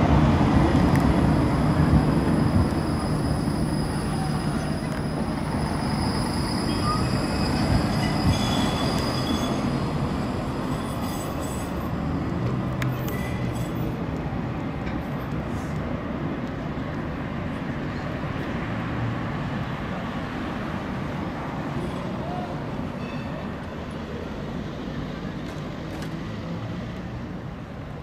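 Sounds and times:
tram wheels rumbling on rails: 0:00.0 - 0:28.0
faint high wheel squeals: 0:01.7 - 0:09.9, 0:10.7 - 0:11.8, 0:21.8 - 0:23.7.

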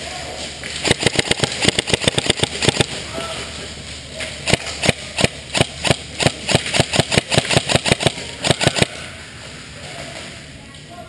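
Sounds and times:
airsoft guns firing: 0:00.7 - 0:03.2, 0:04.4 - 0:09.0.

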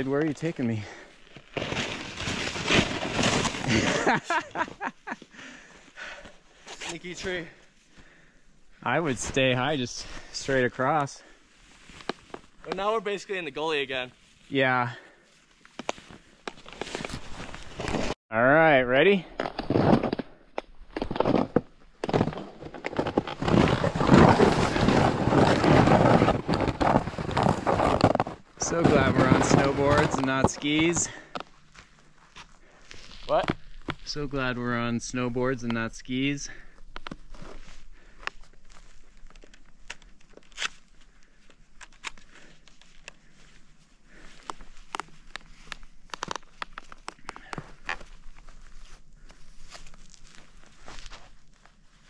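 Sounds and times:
snow crunching and scraping: 0:00.0 - 0:18.2, 0:21.0 - 0:39.4, 0:42.2 - 0:52.0
snowboard scraping through snow: 0:01.6 - 0:04.4, 0:23.4 - 0:30.8.

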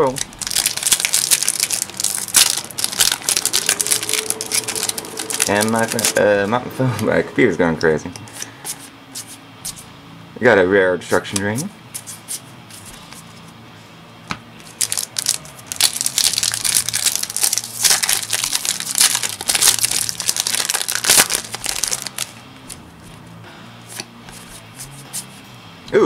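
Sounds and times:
foil wrapper crinkling and tearing: 0:00.0 - 0:06.2, 0:14.7 - 0:22.4.

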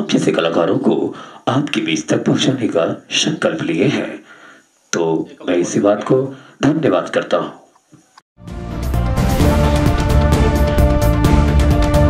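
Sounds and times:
theme music with driving beat: 0:08.4 - 0:12.0.

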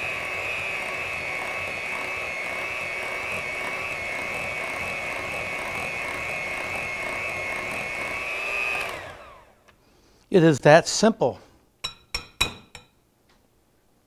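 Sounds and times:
electric hand mixer whining: 0:00.0 - 0:09.7.

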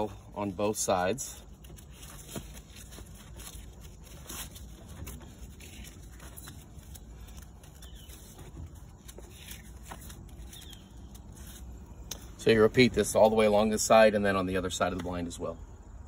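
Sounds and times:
fabric rustling: 0:01.0 - 0:13.2
light clicks and scrapes: 0:01.2 - 0:13.0.

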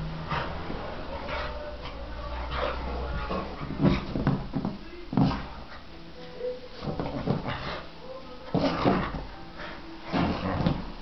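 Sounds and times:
heavy bumps: 0:00.0 - 0:05.9.

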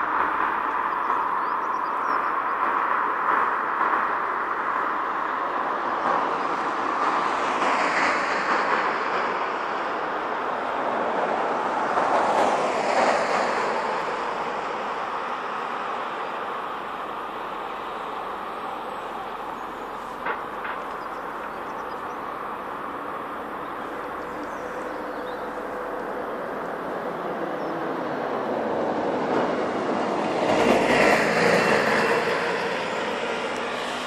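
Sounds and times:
passing vehicles rushing: 0:00.0 - 0:34.0.

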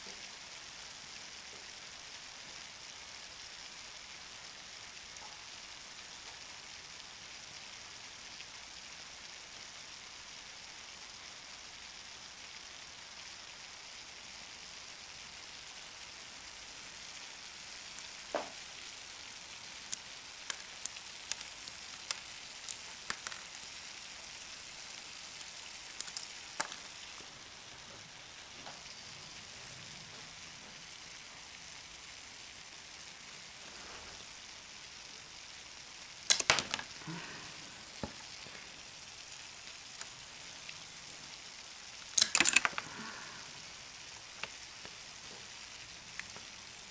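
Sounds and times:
dry ice fizzing: 0:00.0 - 0:46.9
sharp clicks and crackles: 0:19.8 - 0:23.8, 0:25.4 - 0:28.0, 0:36.2 - 0:38.6, 0:42.0 - 0:45.5.

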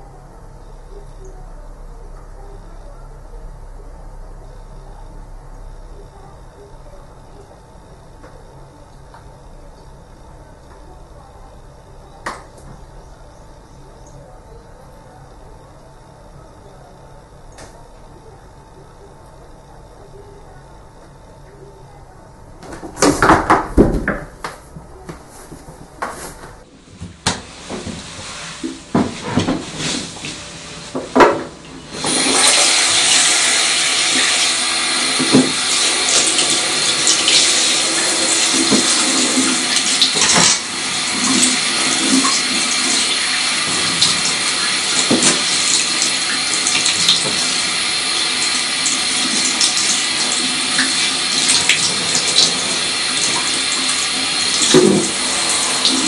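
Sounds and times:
shower spray hissing: 0:31.6 - 0:56.0.

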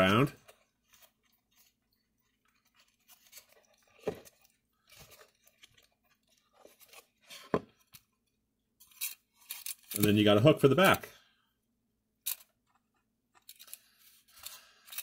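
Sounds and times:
wire rustling being twisted: 0:00.4 - 0:07.2.

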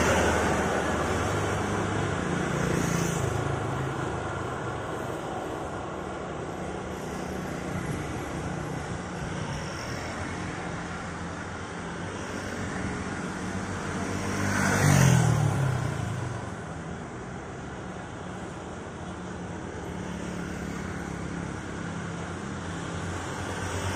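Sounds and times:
vehicle passing by: 0:13.6 - 0:16.4.

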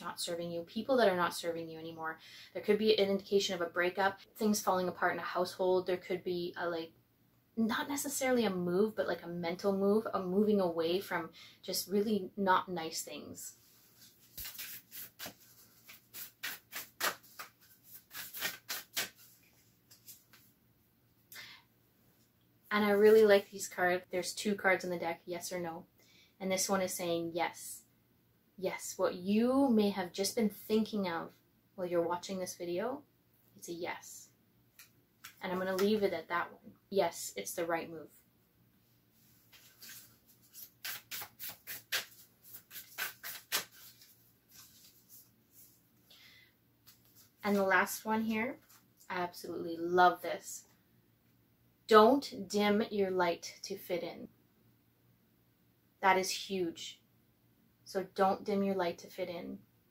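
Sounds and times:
cards being shuffled: 0:13.7 - 0:20.5, 0:34.8 - 0:36.0, 0:39.3 - 0:45.8.

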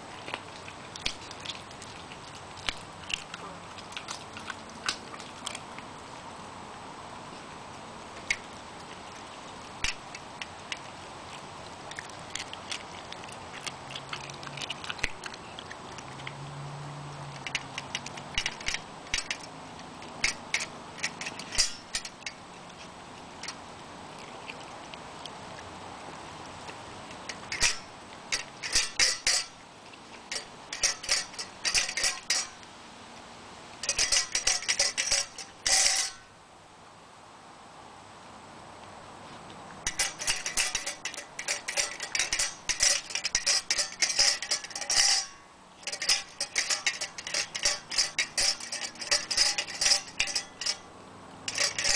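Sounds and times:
metal bowl clinking on stand: 0:27.3 - 0:29.6, 0:30.3 - 0:32.6, 0:33.8 - 0:36.3, 0:39.9 - 0:50.9, 0:51.5 - 0:51.9.

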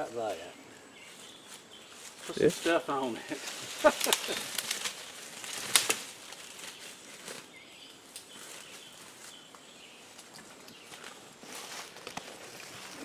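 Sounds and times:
leafy branches rustling: 0:00.0 - 0:13.0
twigs snapping: 0:03.4 - 0:07.4.

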